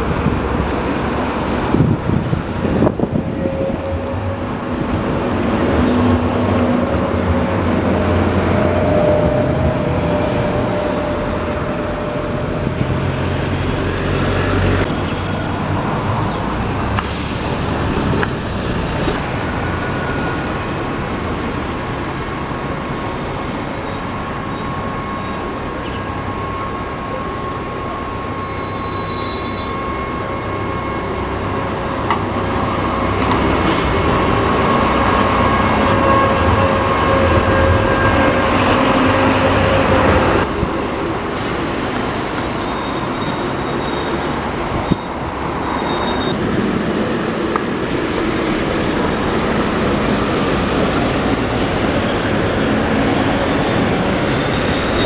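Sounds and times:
rail vehicle whining and rumbling: 0.0s - 55.0s
air hissing: 41.3s - 42.7s.

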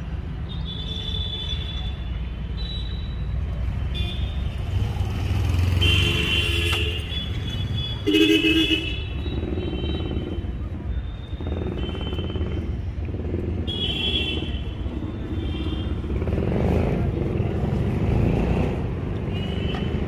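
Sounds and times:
low rumble of engines: 0.0s - 20.0s
vehicle horns honking: 5.8s - 10.2s.

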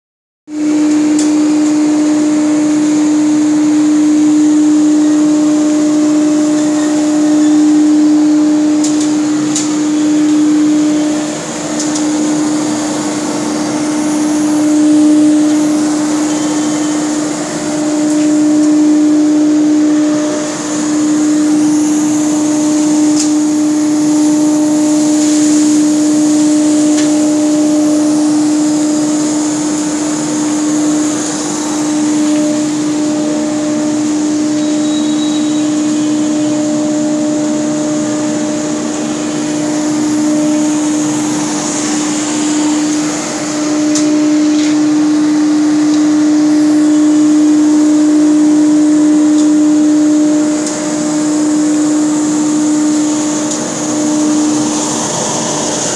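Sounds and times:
dust collector humming: 0.5s - 55.9s
hiss of rushing air: 0.8s - 55.9s.

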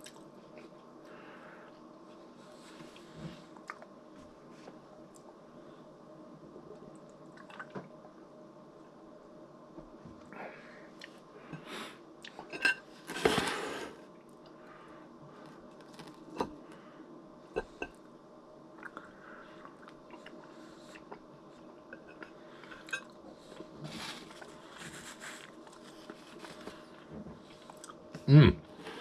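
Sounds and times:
dishes and cutlery clinking: 12.5s - 13.4s.

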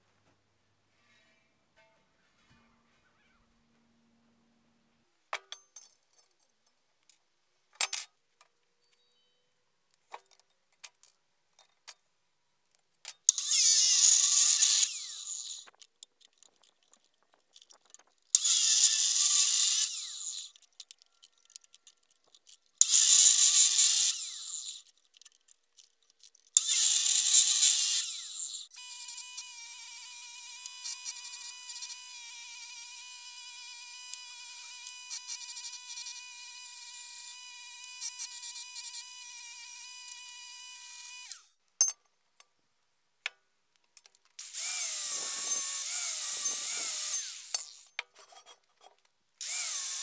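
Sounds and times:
chop saw cutting steel pipe: 13.3s - 15.7s, 18.4s - 20.6s, 22.8s - 24.9s, 26.6s - 41.5s, 44.4s - 48.5s, 49.4s - 50.0s
clicks and knocks handling pipe: 15.7s - 18.4s, 47.6s - 49.2s.

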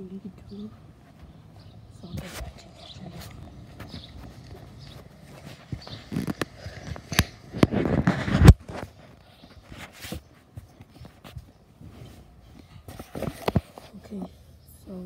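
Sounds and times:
rubbing rumble ending in thump: 2.1s - 9.0s
clicks and knocks on phone microphone: 3.2s - 10.3s.

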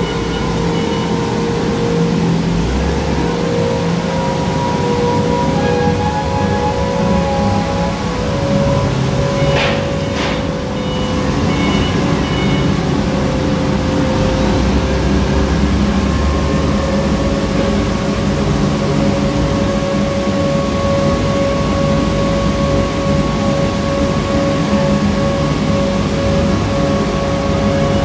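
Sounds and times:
hay dryer drone and whine: 0.0s - 28.0s.

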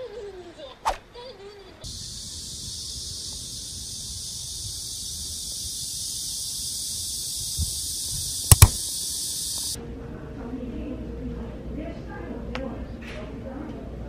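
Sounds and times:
cicadas buzzing: 1.8s - 9.8s
camera shutter clicks: 8.5s - 8.8s.

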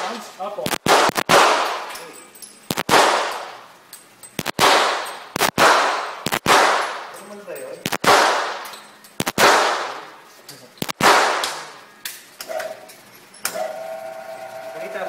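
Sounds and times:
gunshots echoing indoors: 0.7s - 2.0s, 2.7s - 3.6s, 4.4s - 7.1s, 7.9s - 10.1s, 10.8s - 11.8s.

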